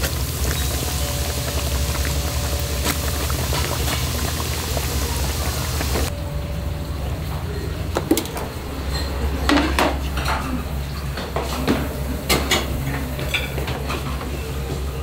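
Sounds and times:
oil sizzling in a deep fryer: 0.0 - 6.1
steady low hum: 0.0 - 15.0.

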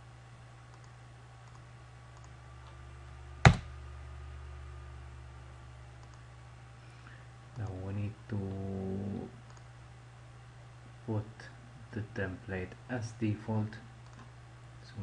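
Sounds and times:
low steady hum: 0.0 - 15.0
computer mouse clicking: 0.7 - 1.6, 2.2 - 2.4, 6.0 - 6.2, 9.5 - 9.7.

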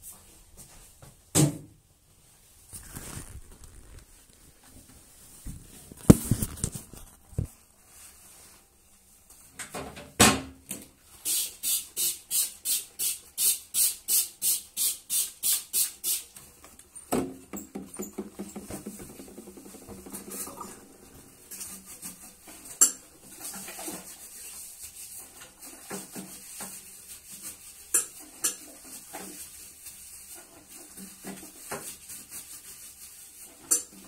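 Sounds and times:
cleaning things clattering: 17.0 - 24.2
toilet being scrubbed: 18.0 - 34.0.

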